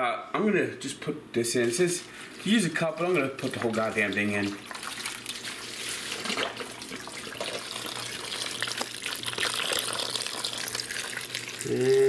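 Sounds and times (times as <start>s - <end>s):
broth pouring and splashing: 3.0s - 11.8s.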